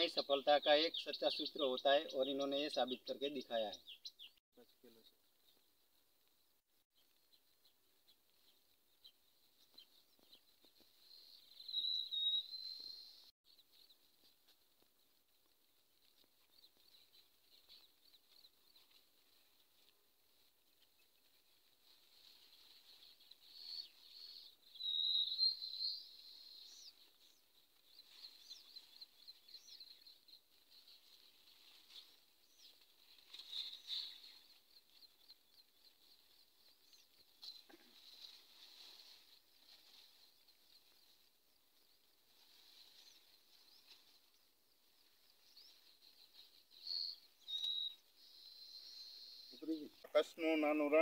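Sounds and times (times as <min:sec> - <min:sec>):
faint high chirps: 0:09.6 - 0:13.8, 0:22.3 - 0:38.4, 0:45.1 - 0:50.7.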